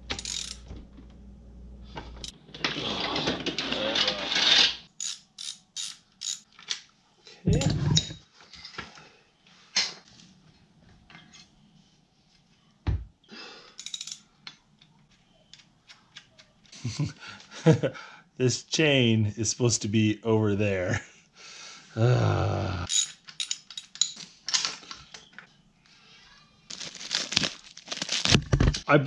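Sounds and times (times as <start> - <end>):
metal clicks and clanks: 13.8 - 14.2.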